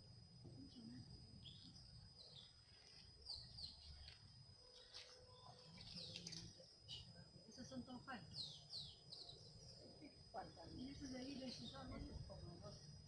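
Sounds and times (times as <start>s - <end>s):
faint bird chirps: 0.5s - 13.0s.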